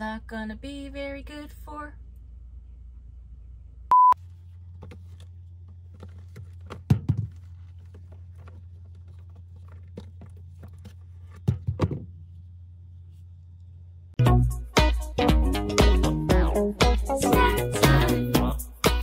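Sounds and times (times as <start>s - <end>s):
fridge low hum: 0.0s - 14.2s
short beep: 3.9s - 4.2s
groceries thudding on fridge shelves: 4.6s - 12.3s.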